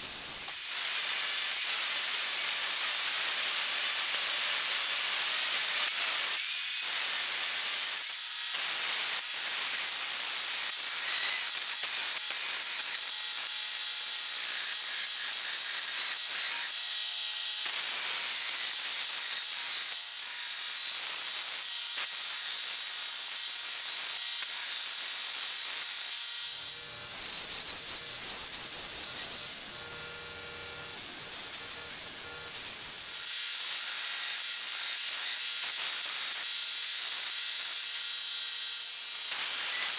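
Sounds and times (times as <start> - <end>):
belt grinder grinding steel: 0.0 - 36.4
cutoff disc cutting steel: 26.4 - 33.2.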